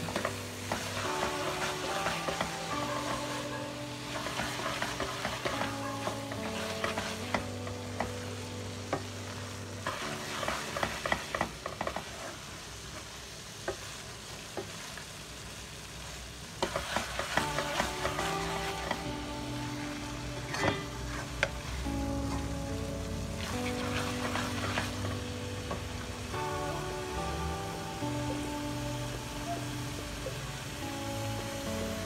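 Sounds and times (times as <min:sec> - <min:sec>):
light sizzle: 0:00.0 - 0:32.0
spatula scraping metal pan: 0:20.4 - 0:21.5.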